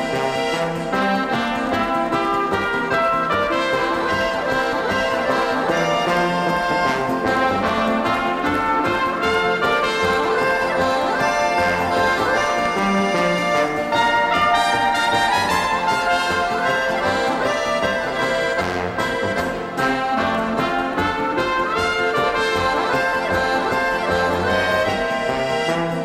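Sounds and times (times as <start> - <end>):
clarinet: 0.0 - 26.0
piano accordion: 0.0 - 26.0
trumpet: 0.0 - 26.0
tuba: 0.0 - 26.0.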